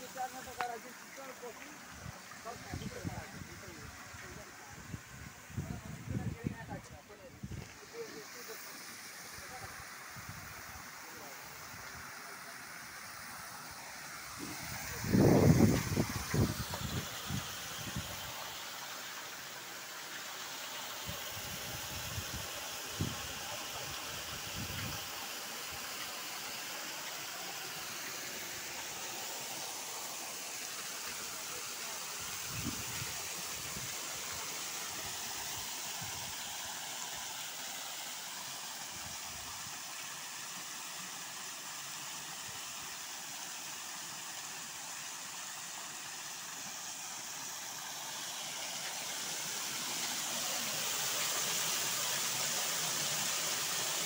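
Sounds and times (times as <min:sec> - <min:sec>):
water splashing into concrete tank: 0:13.7 - 0:40.3, 0:47.0 - 0:54.0.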